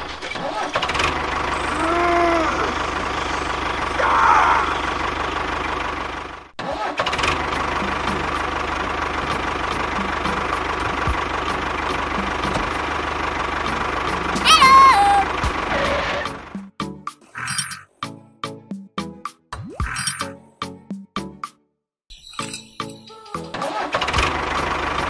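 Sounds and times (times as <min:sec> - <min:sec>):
tractor engine running: 0:00.0 - 0:16.8, 0:23.3 - 0:25.0.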